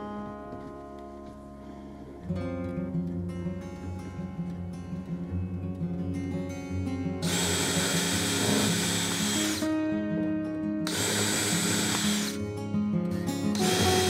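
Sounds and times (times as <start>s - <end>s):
guitar music: 0.0s - 14.0s
cordless drill whining: 7.2s - 9.7s, 10.9s - 12.4s, 13.5s - 14.0s.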